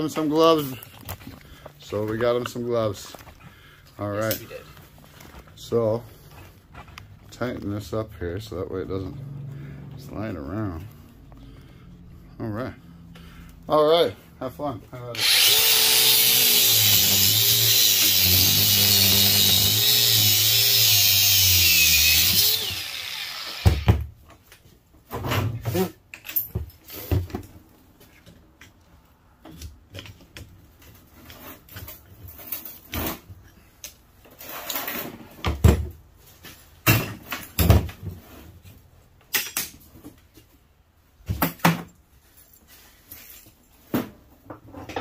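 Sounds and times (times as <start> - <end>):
angle grinder cutting metal: 15.2 - 23.9
grinder spinning down whine: 15.2 - 23.9.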